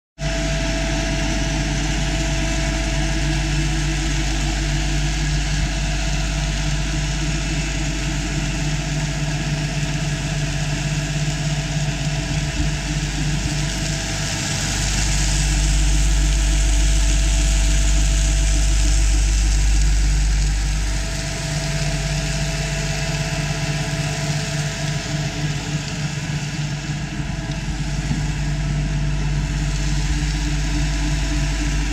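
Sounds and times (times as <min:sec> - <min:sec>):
machine hum with hiss: 0:00.2 - 0:31.9.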